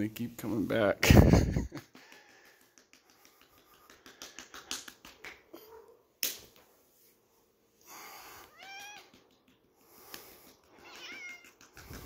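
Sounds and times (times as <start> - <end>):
hand patting cat: 1.2 - 5.7, 8.4 - 12.0
cat meowing: 8.4 - 9.2, 10.8 - 11.6.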